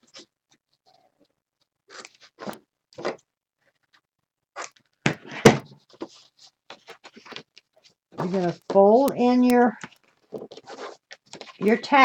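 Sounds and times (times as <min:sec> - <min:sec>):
crisp paper rustles: 0:09.7 - 0:11.9.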